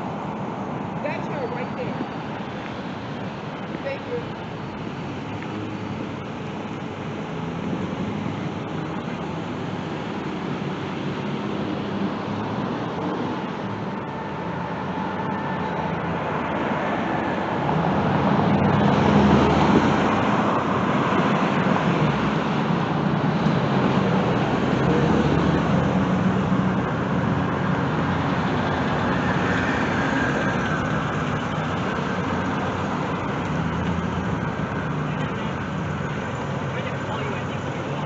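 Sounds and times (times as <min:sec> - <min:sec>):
cars driving past: 0:00.0 - 0:38.0.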